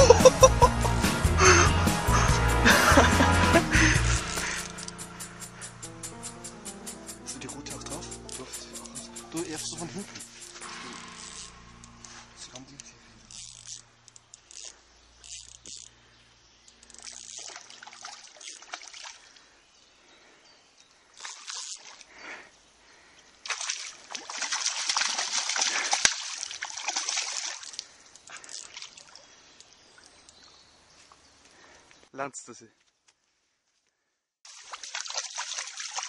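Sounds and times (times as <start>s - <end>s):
water splashing: 16.9s - 19.5s, 21.2s - 22.2s, 23.4s - 30.3s, 34.5s - 36.0s.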